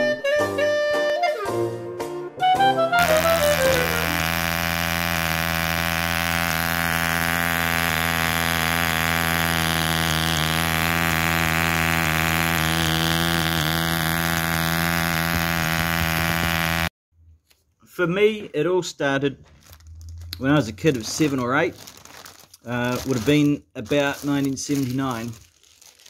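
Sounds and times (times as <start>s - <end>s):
model diesel engine running: 3.0s - 16.9s.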